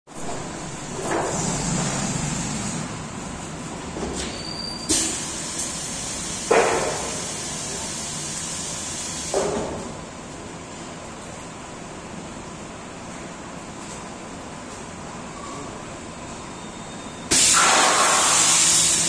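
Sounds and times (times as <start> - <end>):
hissing clunks of machine platens: 4.2 - 9.8, 17.3 - 19.0
machine steady hiss: 4.9 - 9.8, 17.3 - 19.0.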